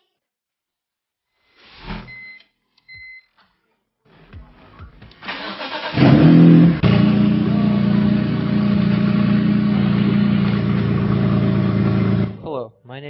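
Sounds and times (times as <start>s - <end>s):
car engine revving and idling: 5.7s - 12.4s.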